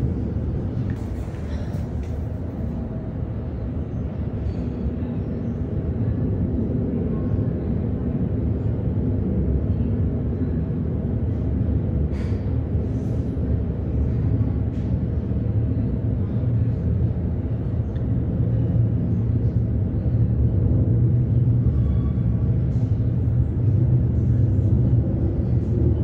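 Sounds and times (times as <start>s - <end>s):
jet aircraft rumbling overhead: 0.0s - 26.0s.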